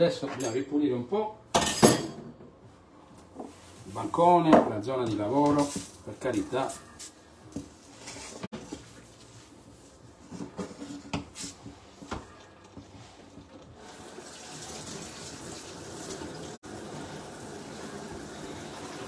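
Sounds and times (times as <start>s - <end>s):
kitchen knocks and clatters: 1.5s - 2.6s, 4.5s - 5.9s, 10.2s - 13.7s.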